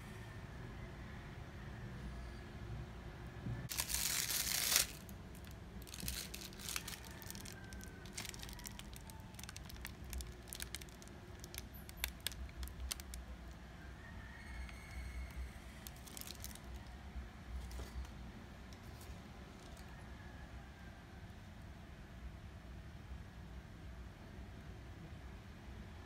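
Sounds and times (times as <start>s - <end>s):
paper rustling: 3.7s - 13.1s.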